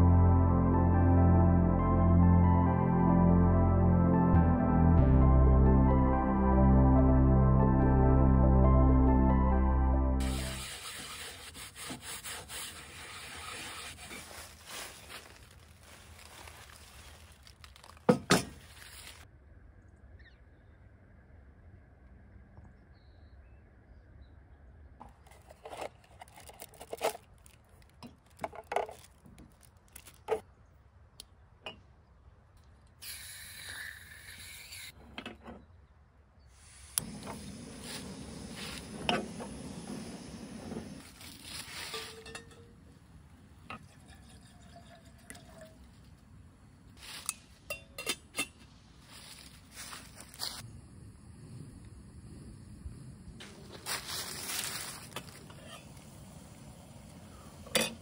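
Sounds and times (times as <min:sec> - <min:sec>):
soft ambient music: 0:00.0 - 0:10.5
faint outdoor ambience: 0:00.0 - 0:58.0
hiss: 0:10.2 - 0:14.2, 0:33.0 - 0:35.0, 0:36.6 - 0:42.1.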